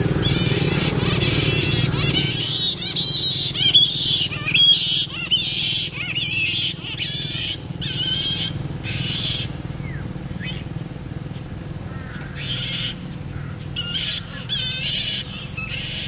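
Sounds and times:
flying foxes screeching: 0:00.0 - 0:16.0.

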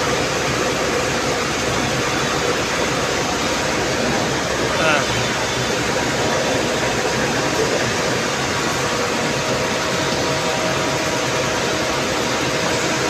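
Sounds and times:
air-conditioning hum: 0:00.0 - 0:13.0
idling coach engine drone: 0:00.0 - 0:13.0.

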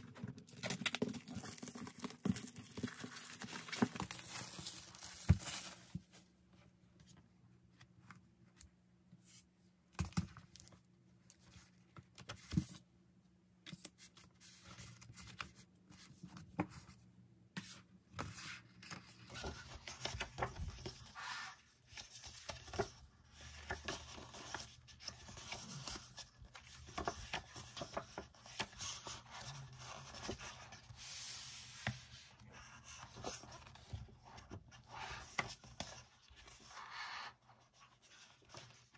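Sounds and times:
pages turning and rustling: 0:00.0 - 0:06.3, 0:17.6 - 0:38.9.

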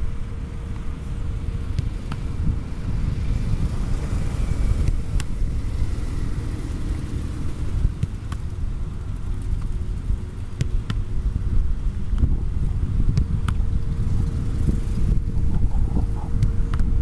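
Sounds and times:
wind buffeting microphone: 0:00.0 - 0:17.0
footballs being kicked: 0:01.6 - 0:02.6, 0:10.5 - 0:11.2, 0:11.9 - 0:13.8.

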